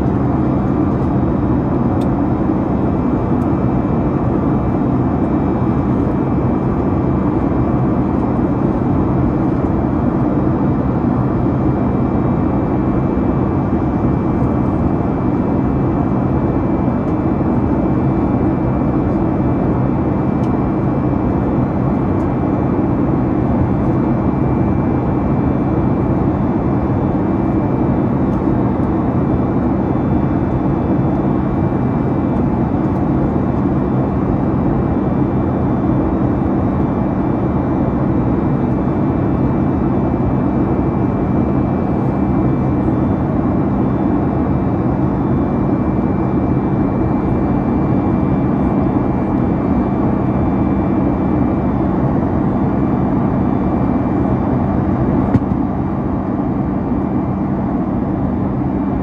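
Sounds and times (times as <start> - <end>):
airplane cabin engine drone: 0.0 - 59.0.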